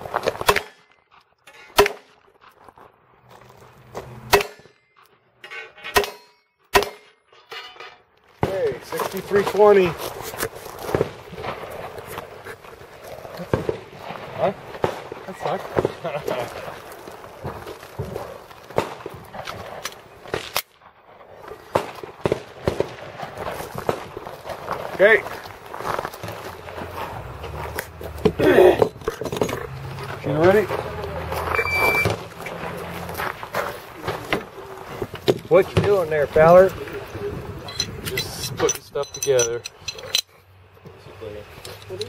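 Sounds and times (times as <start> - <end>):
sharp cracks and knocks: 0.0 - 2.4, 4.0 - 4.8, 5.9 - 12.3, 13.4 - 16.0, 17.3 - 25.0
bullet clanging on steel plate: 5.4 - 8.0, 37.7 - 40.3.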